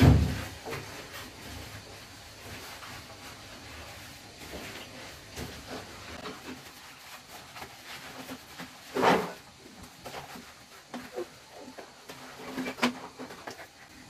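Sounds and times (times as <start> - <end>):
knocks on plastic shower walls: 0.0 - 0.9.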